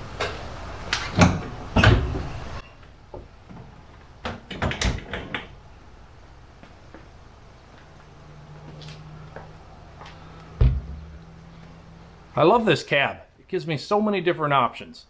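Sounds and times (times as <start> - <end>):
glass panel knocks and rattles: 10.6 - 11.1.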